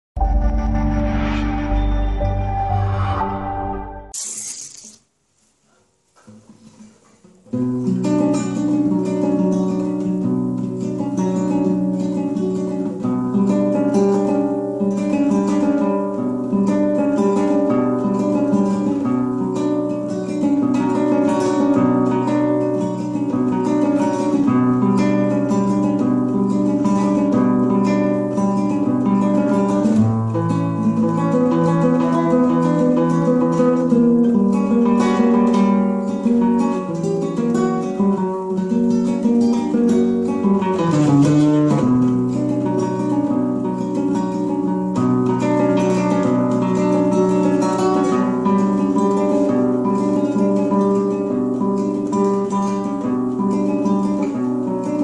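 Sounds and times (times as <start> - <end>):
intro music: 0.2 - 4.2
nylon-string guitar playing: 0.2 - 5.0, 6.3 - 55.0.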